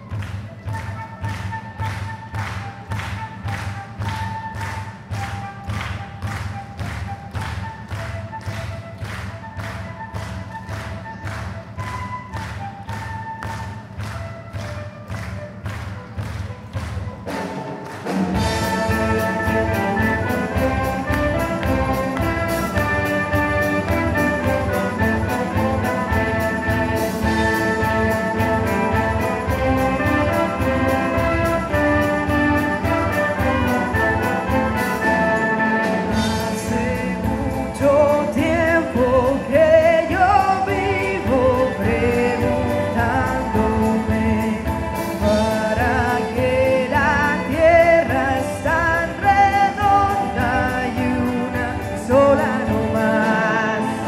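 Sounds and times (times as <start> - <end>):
orchestra with strings: 0.0 - 54.0
person singing: 18.3 - 54.0.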